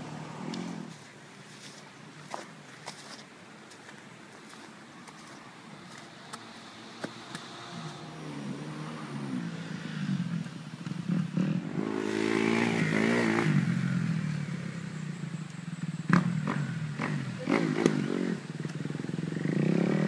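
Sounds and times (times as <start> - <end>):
dirt bike engine revving: 7.4 - 15.2, 15.8 - 20.0.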